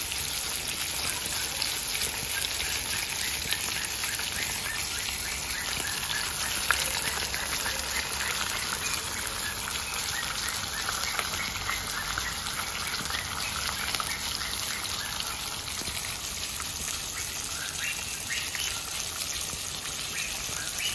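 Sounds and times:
fish sizzling in hot oil: 0.0 - 20.9.

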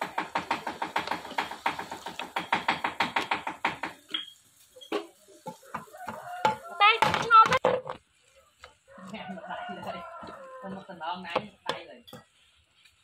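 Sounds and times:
spatula scraping a frying pan: 3.9 - 13.0.

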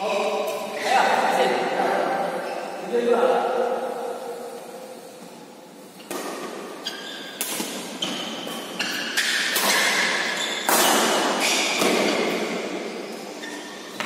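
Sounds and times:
rackets striking shuttlecock: 7.4 - 12.5.

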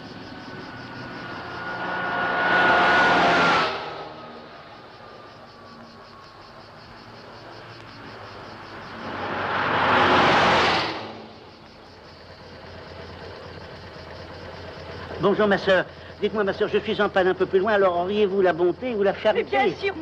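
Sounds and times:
car driving past: 0.0 - 14.0.

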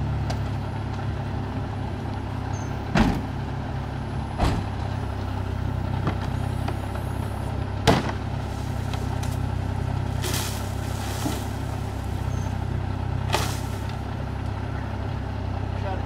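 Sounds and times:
car engine idling: 0.0 - 16.0
rustle: 8.2 - 14.0.

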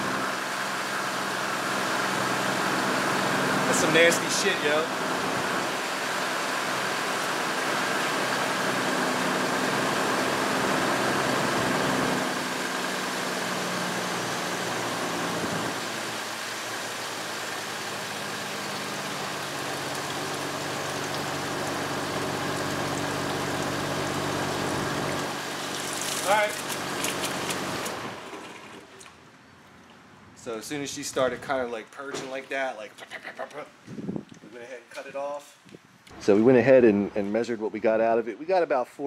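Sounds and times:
fluid streaming into drain pan: 25.5 - 29.1.

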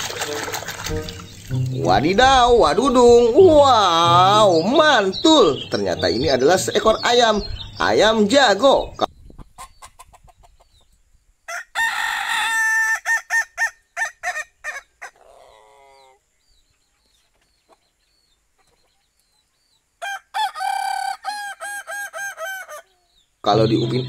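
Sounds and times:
rooster crowing: 11.5 - 16.2, 20.0 - 22.9.

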